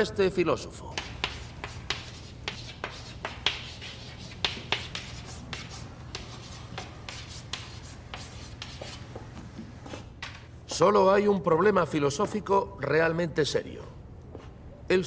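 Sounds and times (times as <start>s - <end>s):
low room hum: 0.0s - 15.0s
chalk tapping and scraping: 0.9s - 10.0s.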